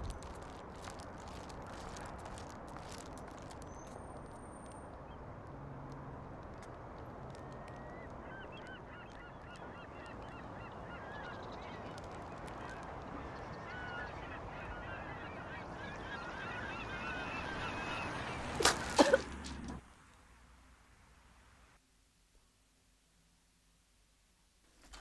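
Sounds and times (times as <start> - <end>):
outdoor background noise: 0.0 - 25.0
geese honking: 7.6 - 18.6.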